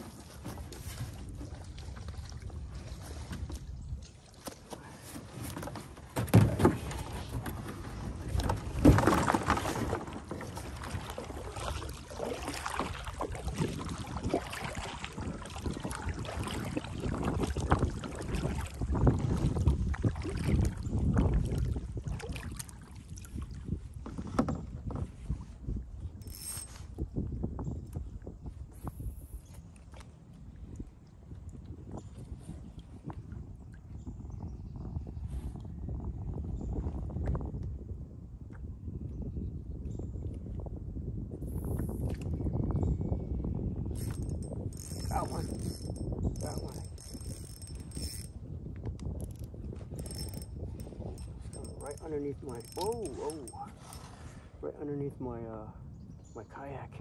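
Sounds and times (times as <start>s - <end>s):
kayak hull scraping sand: 0.0s - 3.7s, 4.6s - 13.1s, 52.5s - 54.6s
paddle strokes splashing: 0.0s - 20.8s.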